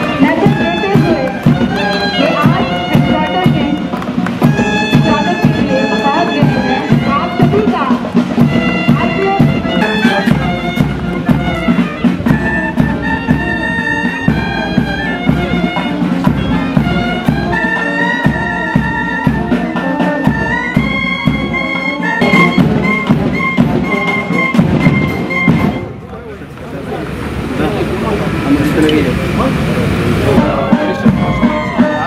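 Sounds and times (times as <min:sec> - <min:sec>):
band melody over drone: 0:00.0 - 0:32.0
drum beats: 0:00.0 - 0:32.0.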